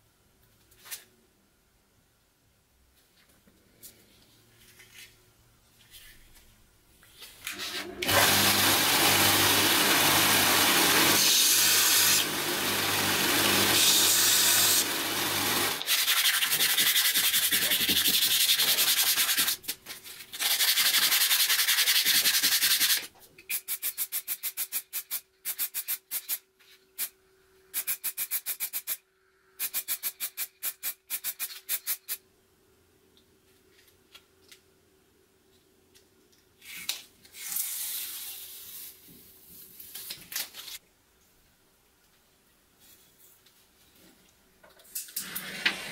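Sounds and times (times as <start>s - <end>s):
belt sander grinding: 7.8s - 15.8s
hand sanding with sandpaper: 15.8s - 26.4s.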